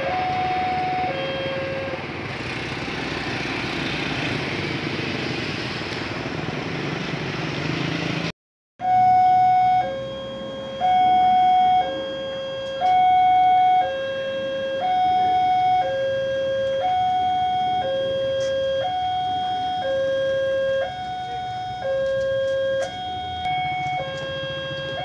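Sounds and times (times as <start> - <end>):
level crossing two-tone alarm: 0.0 - 2.0, 8.8 - 25.0.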